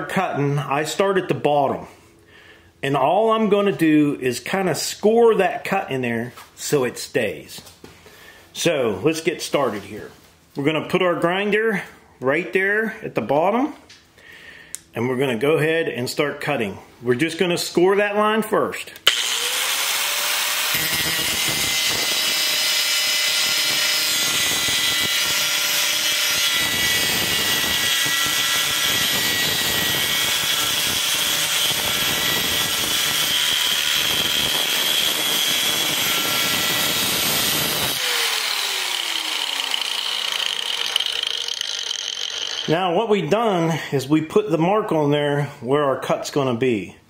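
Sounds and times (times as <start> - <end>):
grinder spinning down: 19.0 - 42.8
angle grinder cutting metal: 19.0 - 43.0.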